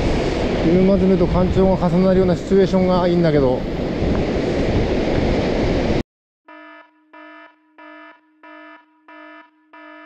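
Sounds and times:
wind and surf noise: 0.0 - 6.0
electronic alarm beeps: 6.5 - 10.0.

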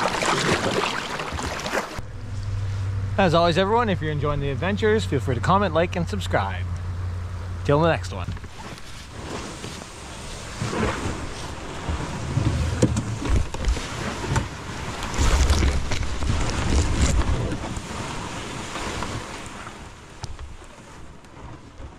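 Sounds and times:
low rumbling bumps: 0.0 - 21.9
kayak hull scraping over grass: 8.4 - 21.9
twigs ticking against hull: 12.8 - 17.9.

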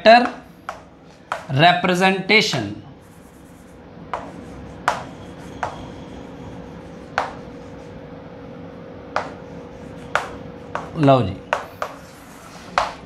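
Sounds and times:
chalk tapping on blackboard: 0.2 - 1.5, 3.0 - 6.0, 6.8 - 7.9, 9.1 - 13.0.

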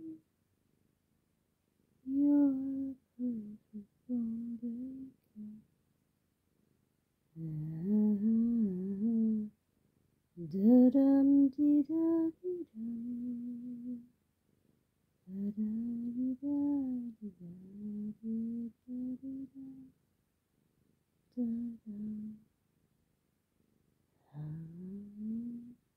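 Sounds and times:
person humming a slow tune: 0.0 - 0.2, 2.1 - 5.6, 7.4 - 9.6, 10.4 - 14.1, 15.3 - 19.9, 21.3 - 22.4, 24.2 - 25.8.

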